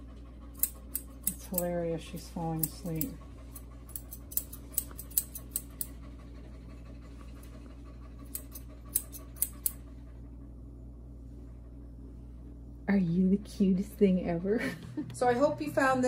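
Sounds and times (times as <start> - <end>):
scissors snipping hair: 0.5 - 6.0, 8.2 - 9.8.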